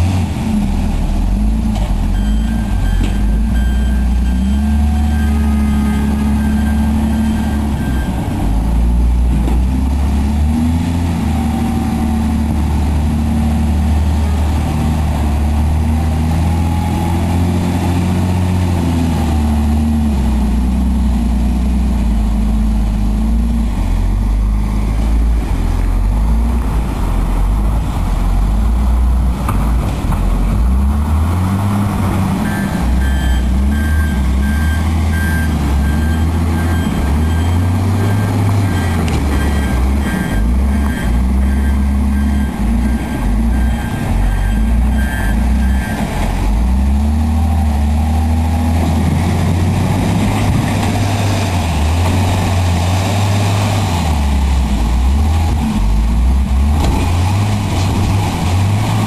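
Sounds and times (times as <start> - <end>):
heavy vehicle engine running: 0.0 - 59.0
beeping alarm: 2.1 - 8.2, 32.4 - 46.1.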